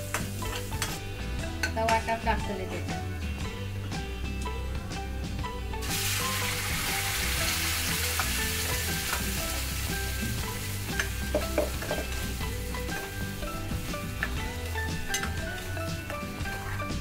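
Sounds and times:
paste sizzling in hot oil: 5.8s - 17.0s.

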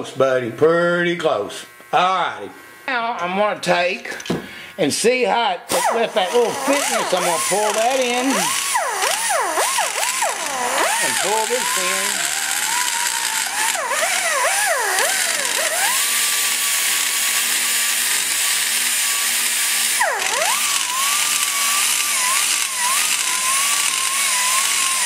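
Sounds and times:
die grinder grinding metal: 5.7s - 25.0s.

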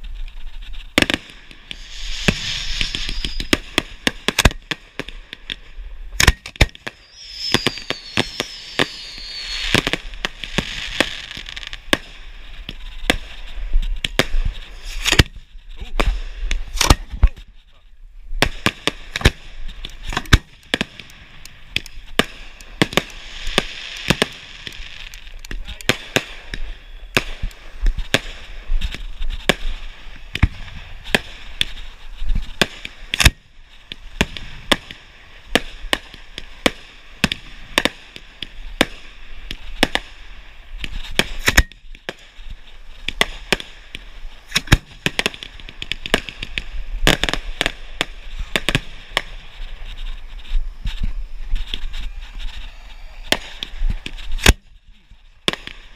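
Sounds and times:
fireworks banging: 0.0s - 55.9s.

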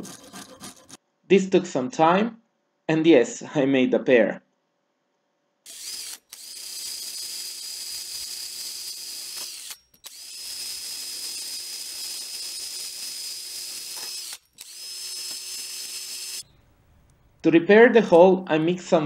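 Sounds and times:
electric drill sanding wood: 5.7s - 16.4s.

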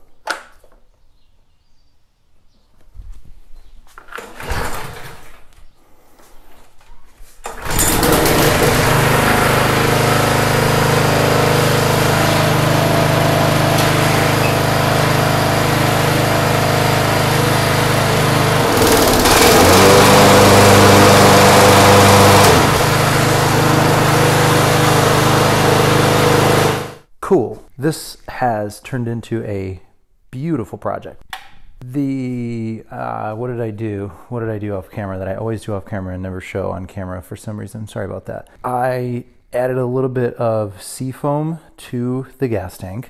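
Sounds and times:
lawn mower engine running: 7.5s - 27.0s.

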